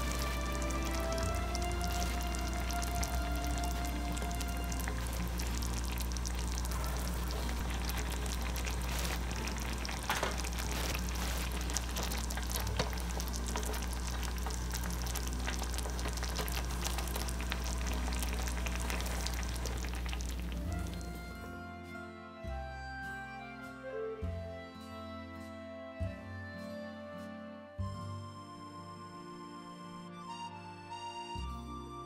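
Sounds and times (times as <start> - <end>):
sauce bubbling in a pan: 0.0 - 21.2.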